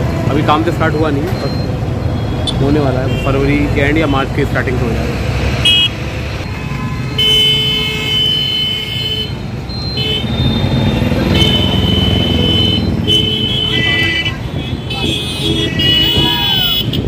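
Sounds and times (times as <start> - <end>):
traffic engines rumbling: 0.0 - 17.0
vehicle horns honking: 2.0 - 3.5, 5.6 - 17.0.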